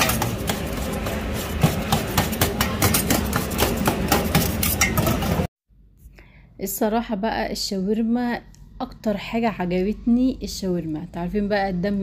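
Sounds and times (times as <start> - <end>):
kitchen noise: 0.0 - 5.5
metal spatula clattering on steel tray: 1.6 - 5.5.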